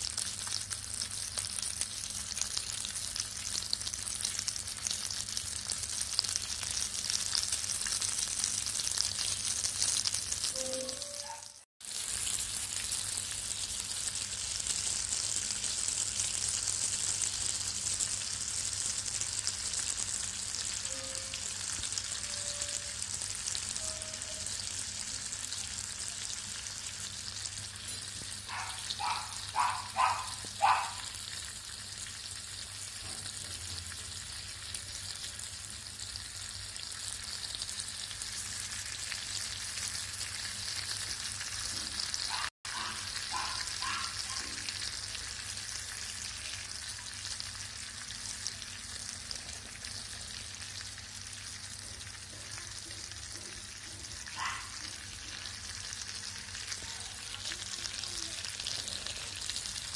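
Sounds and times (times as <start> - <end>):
fish sizzling in oil: 0.0 - 59.9
short pitched chirps: 10.5 - 11.6.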